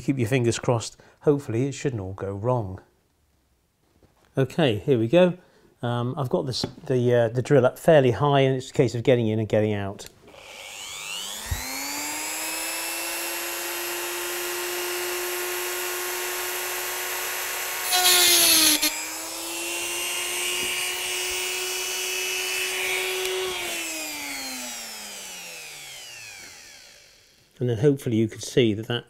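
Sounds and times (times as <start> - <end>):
rotary tool whine: 10.3 - 27.6.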